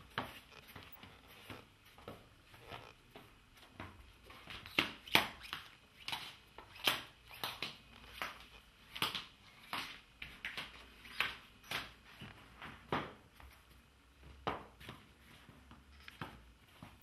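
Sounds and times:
slippers slapping on hard floor: 0.0 - 2.3.

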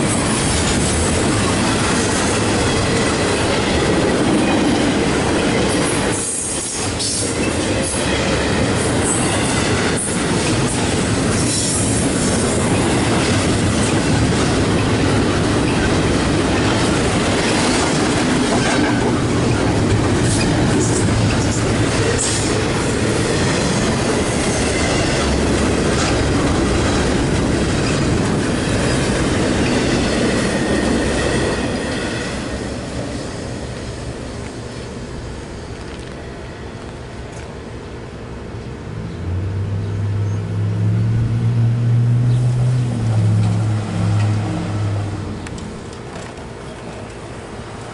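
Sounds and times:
train wheels clacking: 0.0 - 33.2
train wheels rumbling on rails: 0.0 - 47.9.

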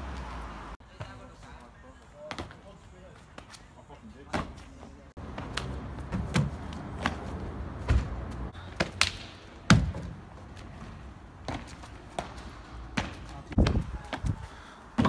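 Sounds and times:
footsteps thudding on paving stones: 4.3 - 15.0.

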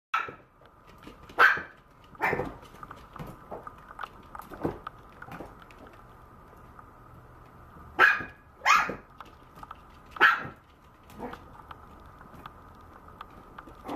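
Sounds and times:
puppy barking high-pitched: 0.2 - 0.5, 1.4 - 2.5, 8.0 - 9.1, 10.2 - 10.6.

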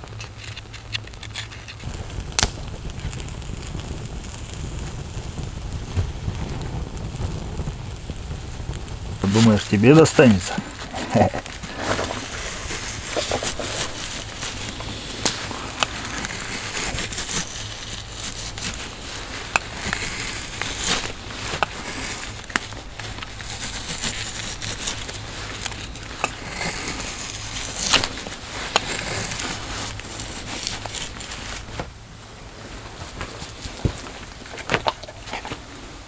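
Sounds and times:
knife cutting and tearing meat: 15.7 - 18.9.

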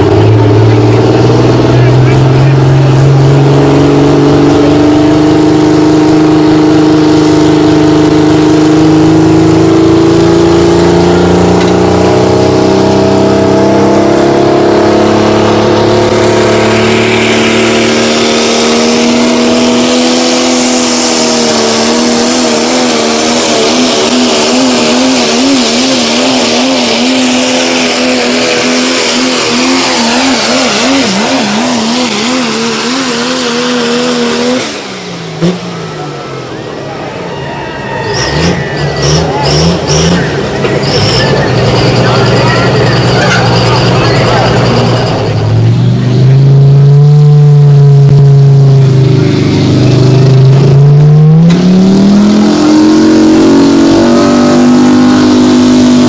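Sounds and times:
pickup truck engine at full throttle: 0.0 - 56.0
loud rushing hiss: 16.1 - 19.8.

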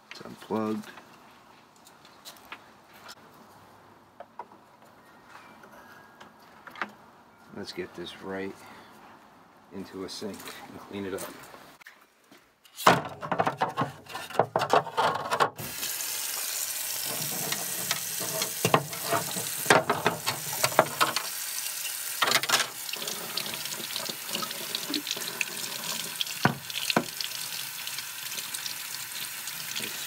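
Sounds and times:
tap water running into sink: 15.6 - 30.0.

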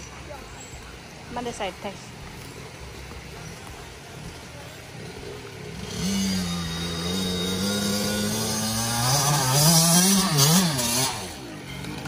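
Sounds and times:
dirt bike engine revving: 4.8 - 12.0.

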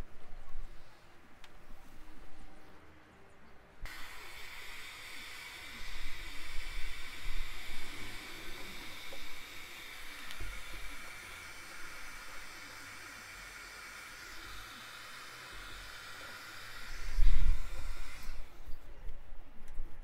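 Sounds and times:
heat gun blowing air: 3.8 - 18.8.

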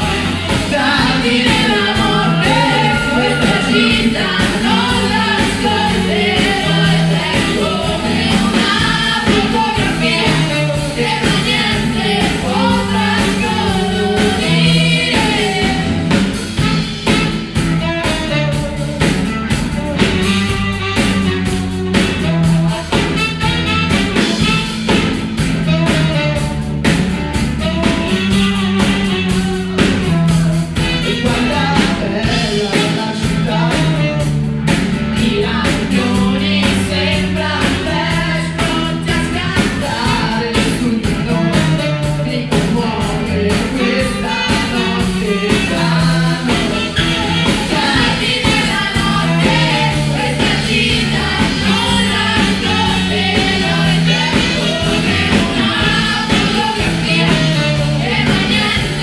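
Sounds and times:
singers singing: 0.0 - 18.5, 35.1 - 59.0
bass guitar: 0.0 - 59.0
drums: 0.0 - 59.0
electric guitar: 0.0 - 59.0.

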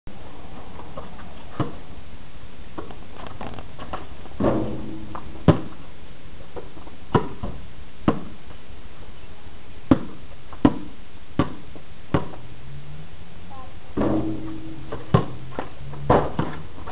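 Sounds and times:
basketball bouncing on concrete: 1.0 - 1.8, 3.8 - 5.8, 6.6 - 8.4, 9.9 - 12.4, 14.0 - 16.9.

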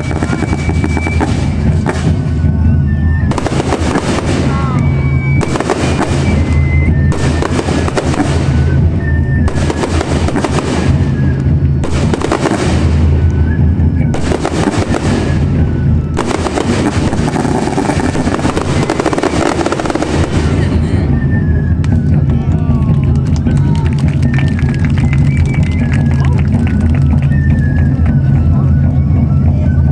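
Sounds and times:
fireworks bursting and crackling: 0.0 - 28.9.

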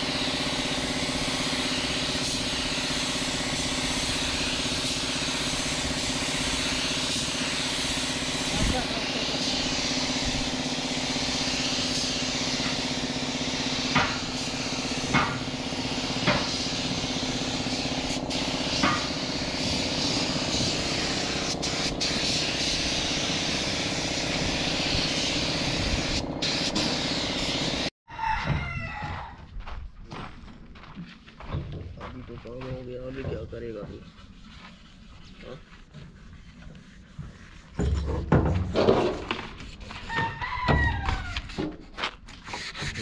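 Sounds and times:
spray gun hissing: 0.0 - 27.9.

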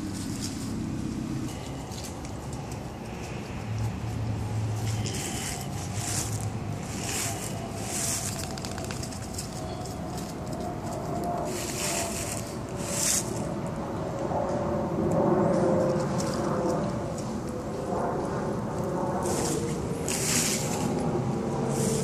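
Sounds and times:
footsteps rustling leaves: 0.0 - 13.6, 19.1 - 22.0
engine hum: 0.0 - 22.0.

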